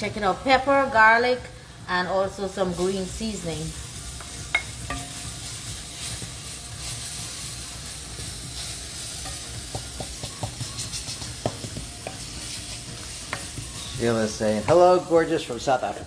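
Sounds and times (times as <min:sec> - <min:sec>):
food sizzling in hot oil: 0:00.0 - 0:16.0
wooden spoon knocking on pan: 0:09.2 - 0:12.3.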